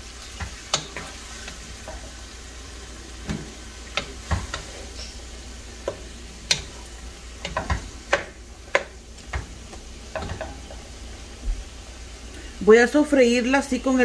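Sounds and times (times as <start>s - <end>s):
meat sizzling: 0.0s - 14.0s
wooden spoon scraping a pot: 0.3s - 11.0s.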